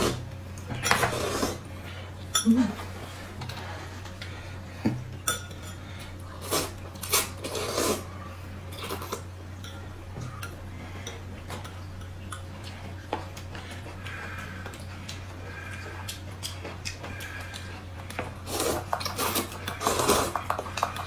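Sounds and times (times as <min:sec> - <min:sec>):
slurping noodles: 0:01.0 - 0:01.6, 0:06.4 - 0:08.2, 0:18.4 - 0:21.0.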